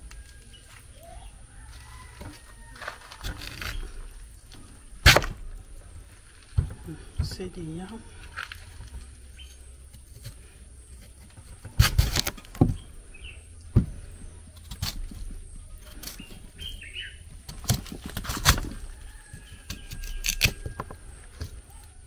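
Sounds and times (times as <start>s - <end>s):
birds chirping: 0.0s - 2.7s, 3.4s - 11.1s, 12.5s - 14.6s, 15.2s - 18.2s.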